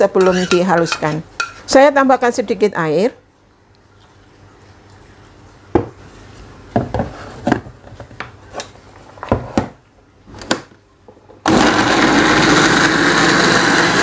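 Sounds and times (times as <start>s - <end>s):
blender motor whirring: 11.5s - 14.0s.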